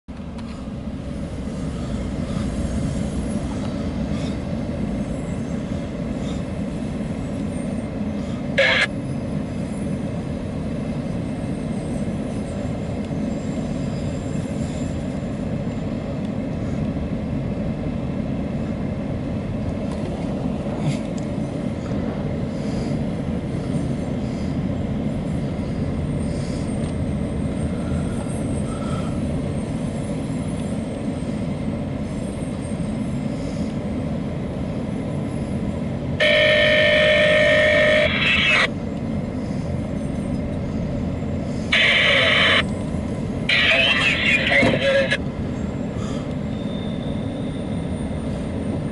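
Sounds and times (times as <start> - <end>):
freight cars rumbling on rails: 0.1 - 48.9
high wheel squeal: 36.2 - 38.4, 46.4 - 48.9.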